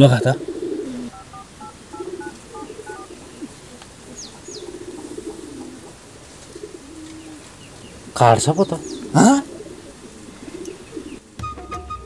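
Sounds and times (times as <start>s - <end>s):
doves cooing: 0.0s - 12.0s
phone keypad tones: 1.1s - 3.2s
high bird chirps: 1.1s - 3.5s.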